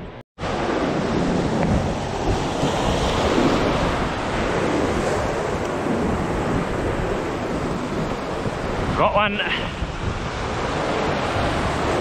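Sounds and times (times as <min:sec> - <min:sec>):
wind buffeting the microphone: 0:00.0 - 0:12.0
surf breaking around rocks: 0:00.4 - 0:12.0.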